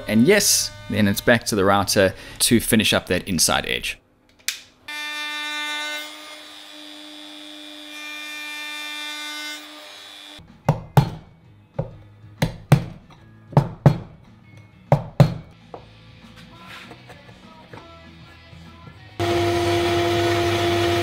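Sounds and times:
wood router high whine: 0.0 - 1.3, 19.2 - 21.0.

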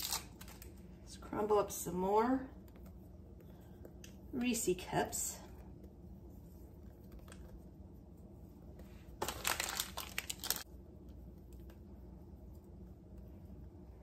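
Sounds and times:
candy wrapper crinkling: 0.0 - 0.9, 9.2 - 10.7.

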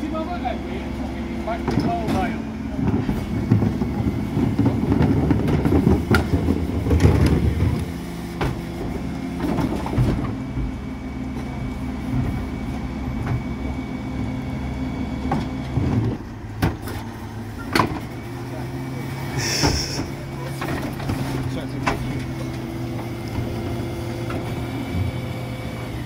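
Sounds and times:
refuse truck running: 0.0 - 26.0
loud rattling rumble: 1.3 - 10.9.

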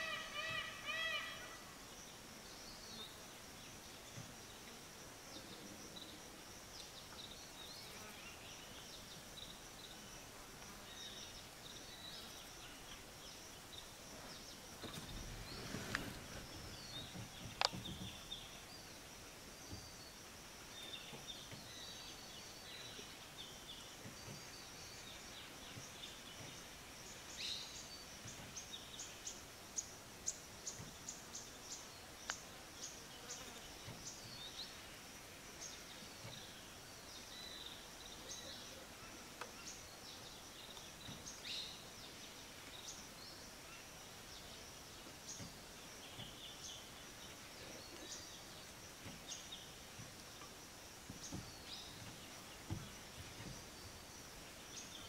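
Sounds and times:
insect drone: 0.0 - 55.0
small birds chirping: 0.0 - 55.0
rustle with sharp click: 14.8 - 18.4.

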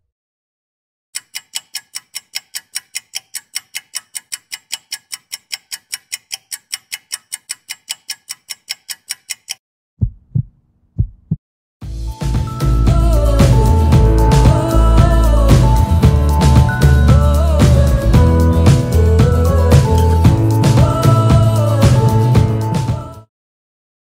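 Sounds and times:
clock-like ticking: 1.2 - 9.6
deep thumps: 10.0 - 11.4.

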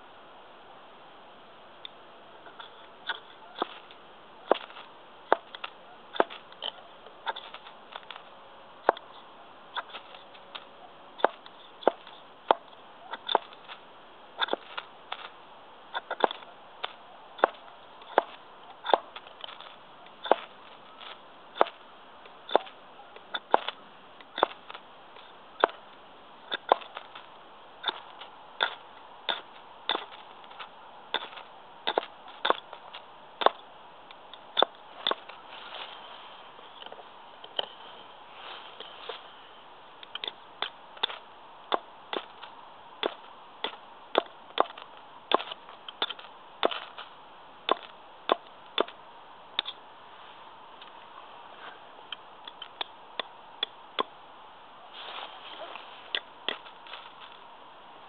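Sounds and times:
ferro rod scraping on axe: 4.5 - 13.8, 14.4 - 21.8, 22.5 - 25.8, 26.5 - 33.6.

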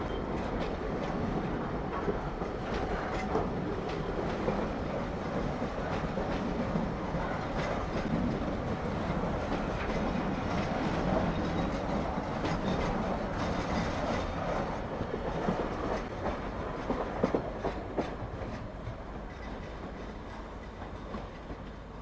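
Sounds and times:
freight train rumbling past: 0.0 - 22.0.

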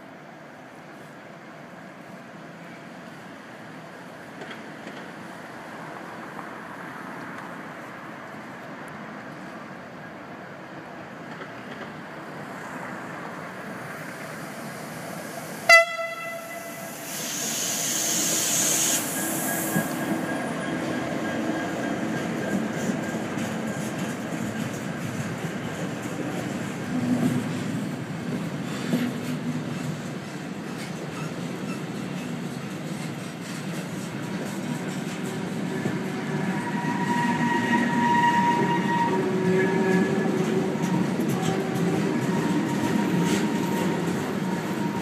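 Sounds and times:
short sharp train horn blast: 15.7 - 17.1, 36.6 - 43.6
high hiss: 16.4 - 20.5.

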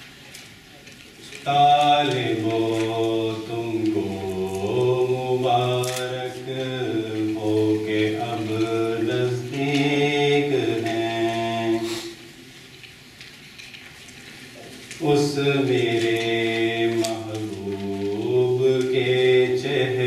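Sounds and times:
man singing unaccompanied: 1.4 - 12.3, 15.0 - 20.0.

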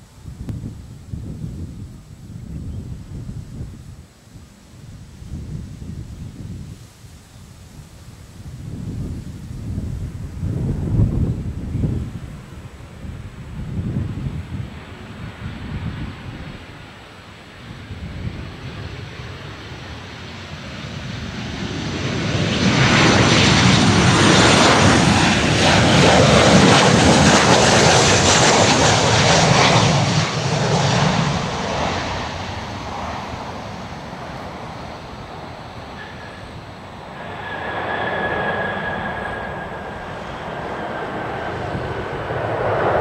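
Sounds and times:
jet engine roar overhead: 0.0 - 43.0
thin jet whine: 33.6 - 43.0.

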